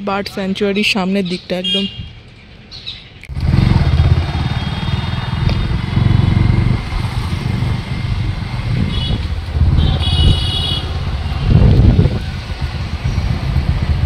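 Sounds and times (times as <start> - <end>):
road traffic: 0.0 - 14.0
motorcycles passing: 3.3 - 14.0.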